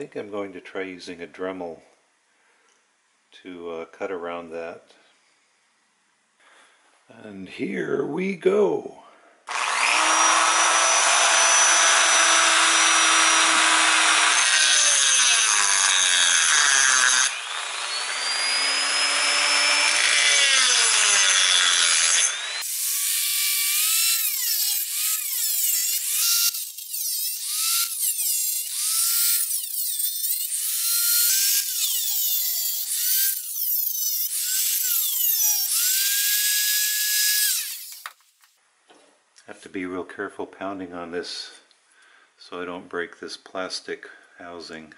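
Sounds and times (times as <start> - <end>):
cutoff wheel cutting metal: 9.5 - 38.3
rotary tool whining: 9.5 - 38.5.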